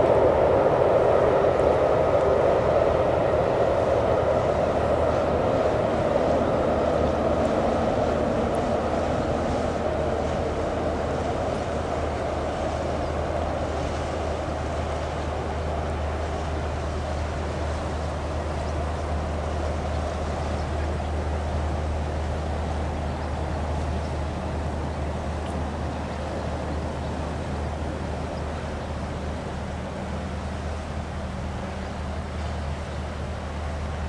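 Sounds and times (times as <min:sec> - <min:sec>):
ship engine drone: 0:00.0 - 0:34.0.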